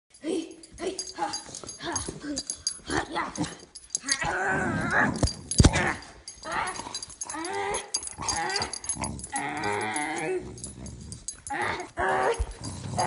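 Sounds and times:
dog growling and whining: 3.5 - 13.0.

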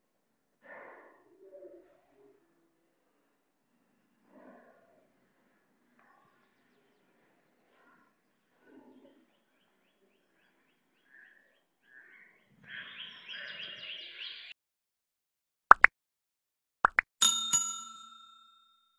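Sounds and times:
birds chirping: 5.4 - 14.6
bright notification ding: 17.2 - 18.6.

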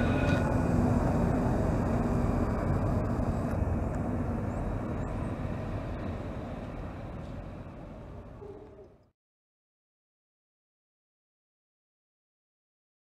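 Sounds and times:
tram rolling on rails: 0.0 - 9.0
faint tram hum: 0.0 - 9.1.

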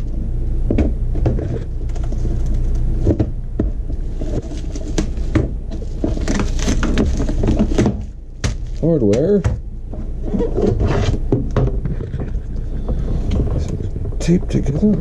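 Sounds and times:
steady low hum: 0.0 - 15.0
plastic packaging crinkling: 4.1 - 9.1.

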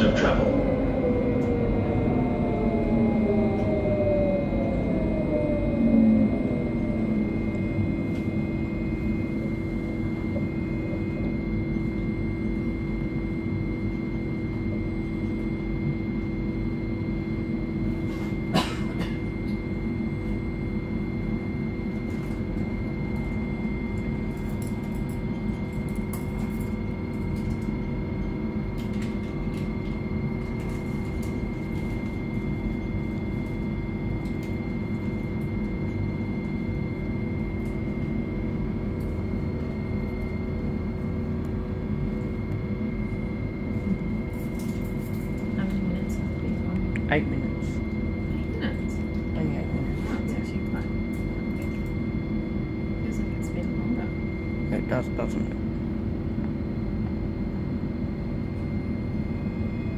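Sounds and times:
falling whine: 0.0 - 18.6
tram rumble and hum: 0.0 - 59.9.

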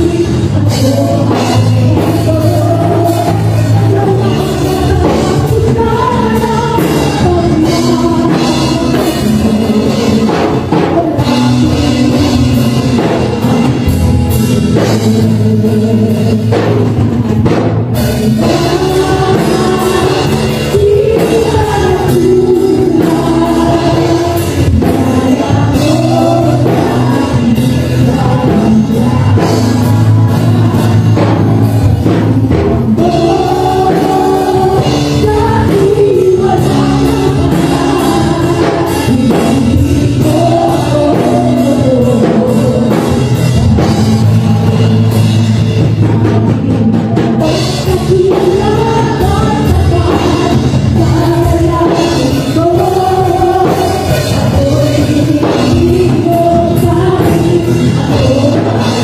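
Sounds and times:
bass guitar: 0.0 - 59.0
electric guitar: 0.0 - 59.0
woman singing into microphone: 0.0 - 59.0.

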